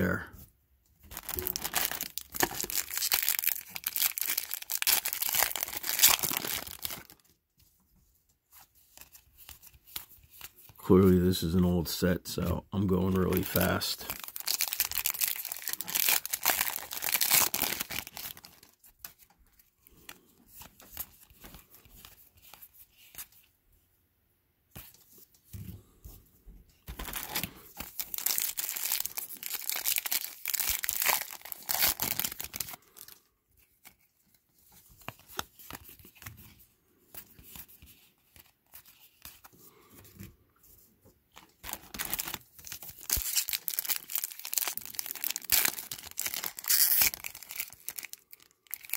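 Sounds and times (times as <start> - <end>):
foil packs tearing and crinkling: 1.1 - 7.2, 13.4 - 18.8, 26.9 - 33.2, 41.6 - 48.9.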